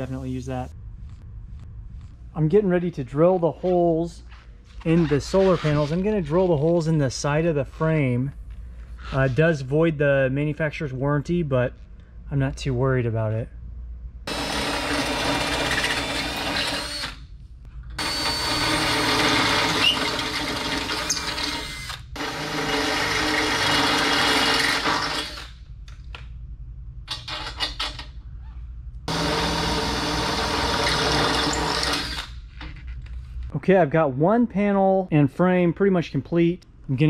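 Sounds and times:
cordless drill boring metal: 14.3 - 17.2, 18.0 - 25.5, 29.1 - 32.4.

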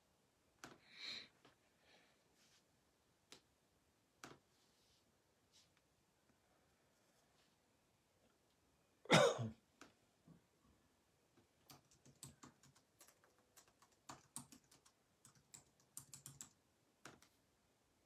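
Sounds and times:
typing on keyboard: 11.6 - 17.3.

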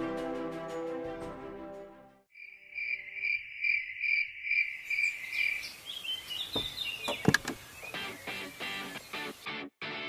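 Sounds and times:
crickets chirping: 2.3 - 9.5
birds chirping: 2.8 - 9.6.

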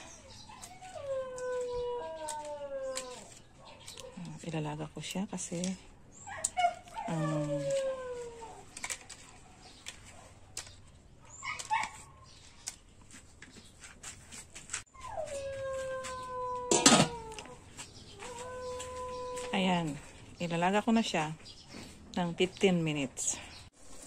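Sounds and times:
animal whining howls: 0.0 - 4.2, 6.2 - 8.8, 14.9 - 20.1.

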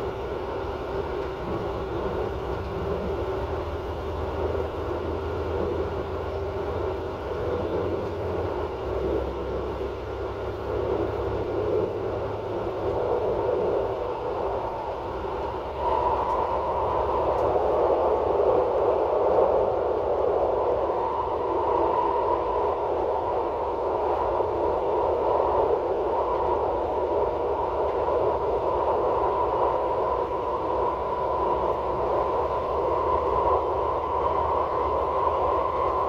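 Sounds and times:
train running hum and rumble: 0.0 - 36.0.

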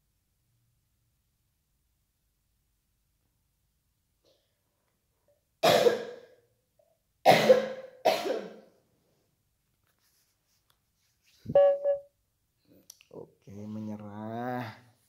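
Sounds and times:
person coughing: 5.6 - 6.3, 7.3 - 8.7.

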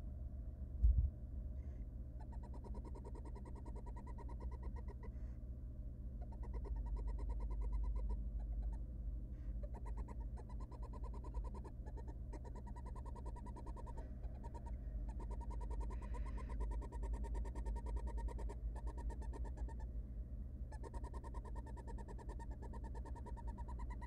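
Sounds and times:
low hum: 0.0 - 10.5
owls twittering calls: 2.2 - 5.1, 6.2 - 8.8, 9.6 - 19.9, 20.7 - 24.0.

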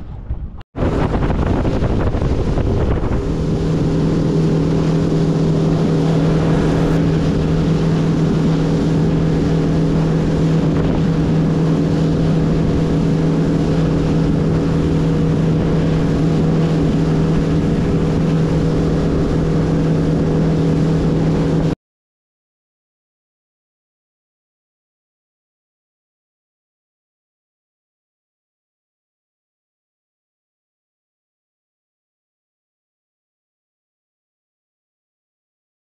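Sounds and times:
water noise: 0.0 - 21.8
wind: 0.0 - 21.8
outboard motor running: 0.8 - 21.8.

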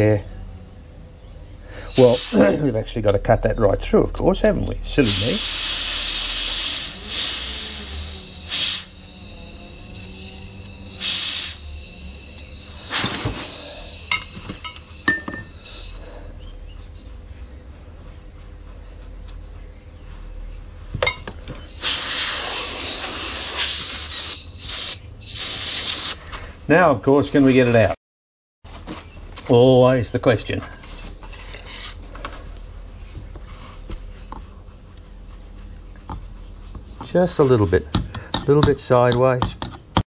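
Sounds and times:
compressed air blow gun hissing: 1.6 - 2.6, 5.0 - 16.3, 21.7 - 26.3.

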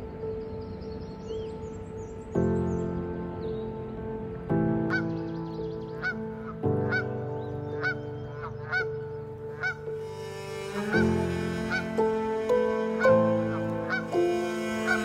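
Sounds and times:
soft background music: 0.0 - 15.0
geese honking: 6.0 - 7.1, 7.7 - 15.0.

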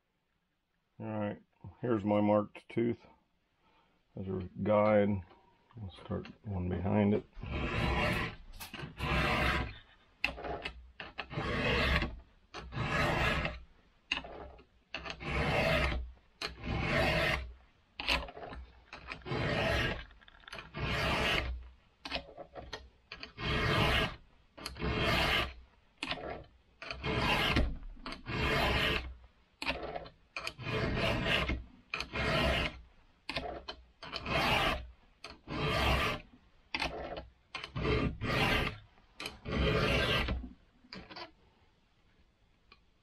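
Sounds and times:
file rasping on saw chain: 6.9 - 36.2, 36.8 - 40.4.

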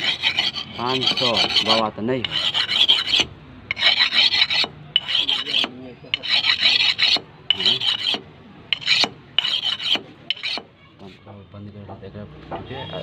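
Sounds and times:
sharpening stone scraping knife blade: 0.0 - 10.7.

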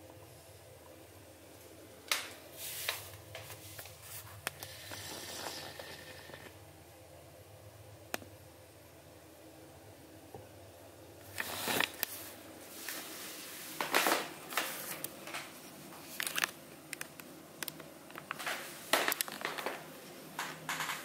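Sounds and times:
crinkling and rustling: 11.2 - 21.0.

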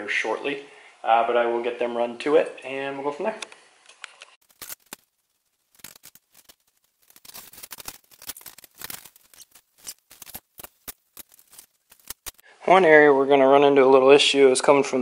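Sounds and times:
paper bag crinkling: 4.4 - 12.4.

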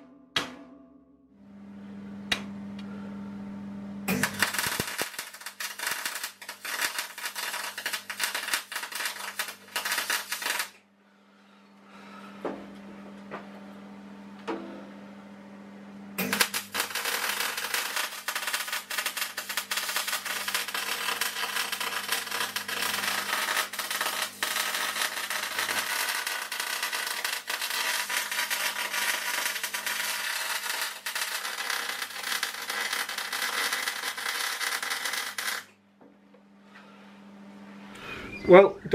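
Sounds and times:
welding arc crackling: 4.1 - 10.8, 16.2 - 35.7.

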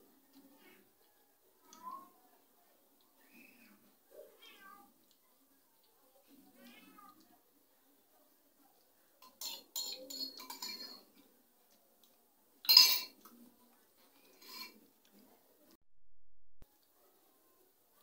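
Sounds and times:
metal spoon scraping bowl: 9.2 - 11.2, 14.3 - 14.8.

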